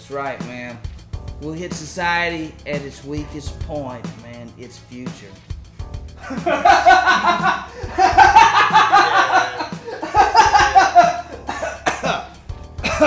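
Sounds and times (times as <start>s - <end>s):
man's belly laugh: 6.2s - 13.0s.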